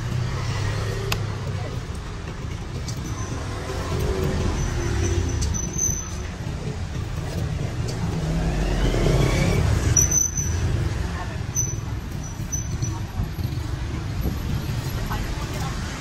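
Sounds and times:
road traffic rumbling: 0.0 - 16.0
engine rising in pitch: 8.2 - 10.2.

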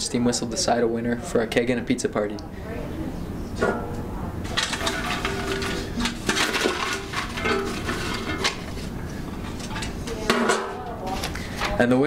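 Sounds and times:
objects clinking and clattering: 3.6 - 11.3.

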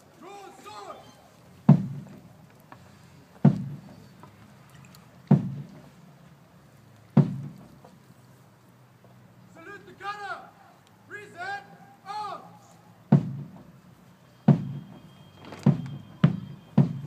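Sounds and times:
bass drum strokes: 5.3 - 5.8, 7.2 - 7.8, 13.1 - 13.7.

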